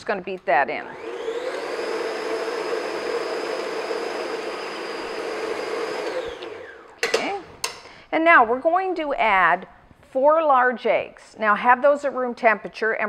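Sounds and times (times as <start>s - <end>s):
electric stand mixer running: 0.9s - 7.0s.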